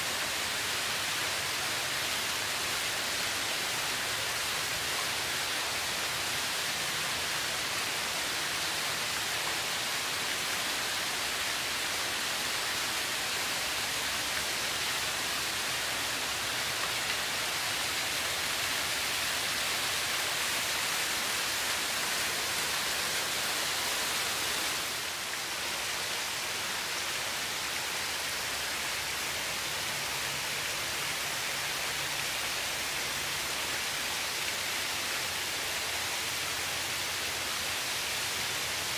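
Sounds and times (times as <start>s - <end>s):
fountain water falling into basin: 0.0s - 24.9s.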